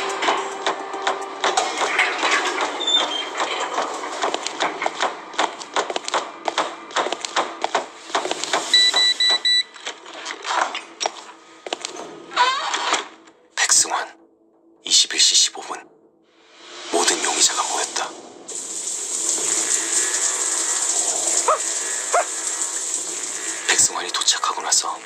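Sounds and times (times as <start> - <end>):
footsteps in a stairwell: 2.6 - 8.7
door lock keypad beeps: 8.7 - 9.7.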